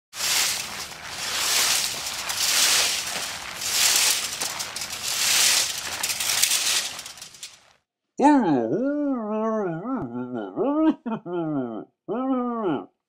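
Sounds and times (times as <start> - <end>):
rake sweeping dry leaves: 0.1 - 7.7.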